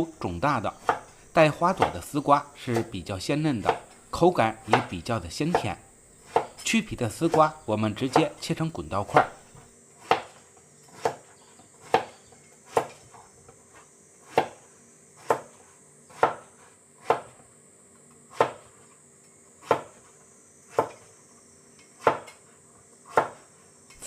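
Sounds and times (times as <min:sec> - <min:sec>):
knife cutting vegetable: 0:00.7 - 0:04.0, 0:04.6 - 0:08.4, 0:09.0 - 0:13.1.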